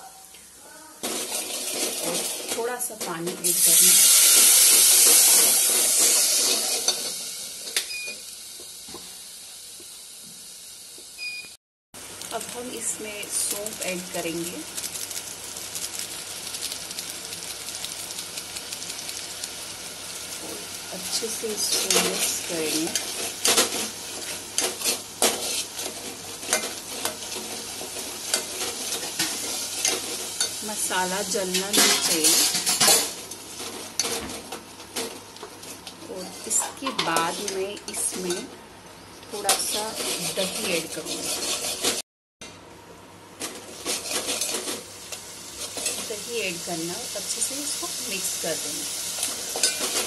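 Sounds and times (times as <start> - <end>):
oil sizzling in a metal pot: 0.0 - 42.0, 43.4 - 50.0
spoon scraping metal pot: 39.5 - 42.0.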